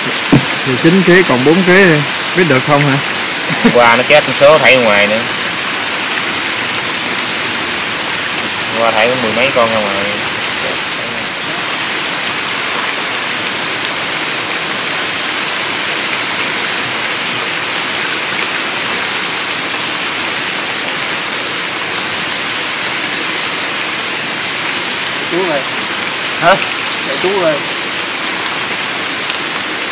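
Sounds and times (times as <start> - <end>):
drop taps: 0.0 - 0.6
steady rain falling: 0.0 - 29.9.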